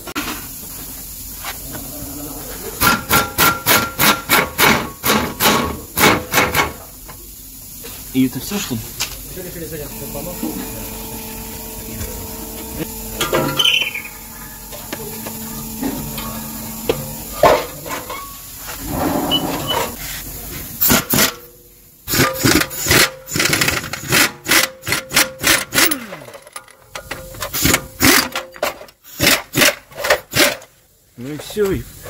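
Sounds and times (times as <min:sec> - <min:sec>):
tools knocking and clattering on metal: 0:13.2 - 0:13.7.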